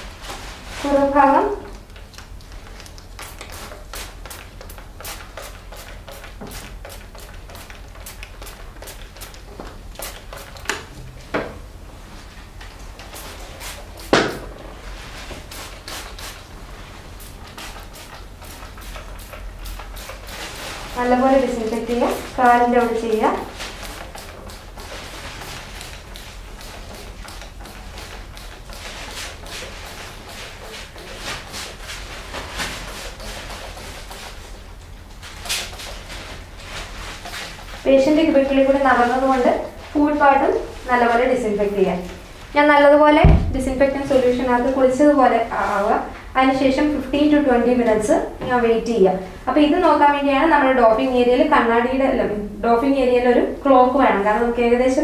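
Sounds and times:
spray bottle squirting: 1.7s - 10.9s, 15.4s - 16.5s, 17.1s - 34.5s
knocks: 43.2s - 43.7s.

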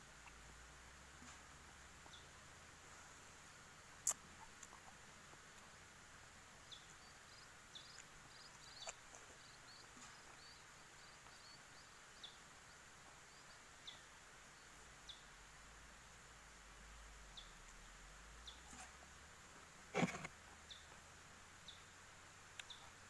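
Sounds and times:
faint small-bird chirps: 6.6s - 15.4s, 17.3s - 17.8s, 18.4s - 19.0s, 20.1s - 21.0s, 22.5s - 23.0s.

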